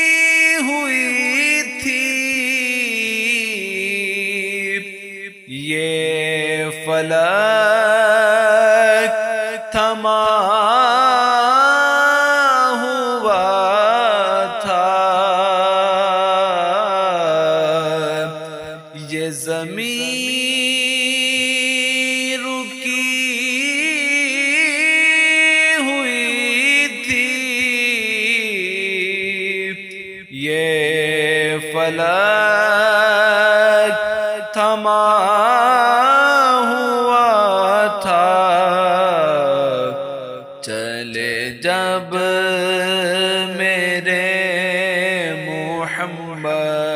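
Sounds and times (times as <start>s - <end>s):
person chanting: 0.0s - 46.9s
person singing devotional song: 0.0s - 46.9s.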